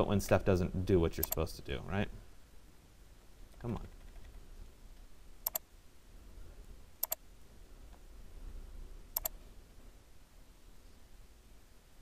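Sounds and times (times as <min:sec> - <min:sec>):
computer mouse double clicks: 0:05.4 - 0:05.6.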